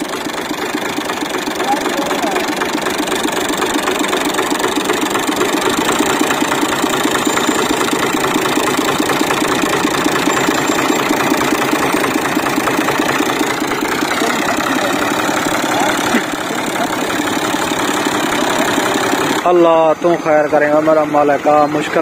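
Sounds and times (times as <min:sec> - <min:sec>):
tractor diesel engine running: 0:00.0 - 0:22.0.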